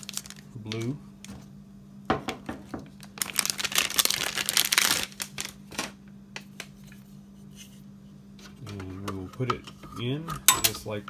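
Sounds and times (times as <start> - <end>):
packaging crinkling and tearing: 0.0 - 1.0, 2.8 - 6.0.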